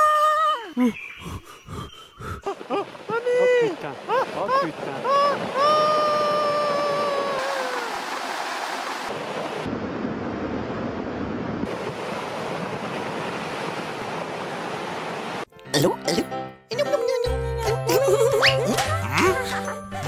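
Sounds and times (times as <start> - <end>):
high wailing cry: 4.1 - 7.9.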